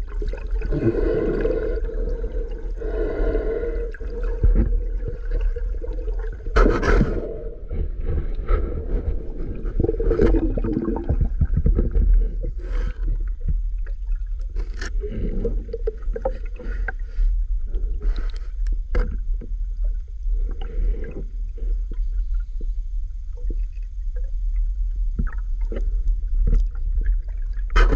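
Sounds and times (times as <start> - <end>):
water gurgling: 0.0 - 17.2
underwater low rumble: 0.0 - 27.9.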